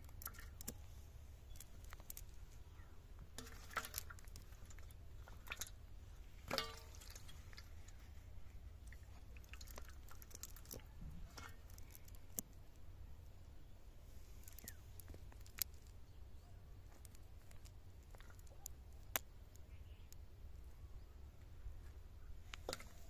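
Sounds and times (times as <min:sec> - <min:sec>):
wet clicks and squelches of mud: 0:00.0 - 0:00.9, 0:01.5 - 0:05.8, 0:06.4 - 0:13.3, 0:14.4 - 0:16.0, 0:16.8 - 0:20.8
low steady hum: 0:00.0 - 0:23.0.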